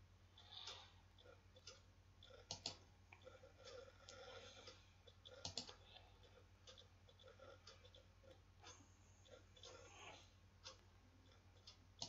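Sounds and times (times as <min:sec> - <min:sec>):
computer mouse clicks: 0:00.4 - 0:09.8.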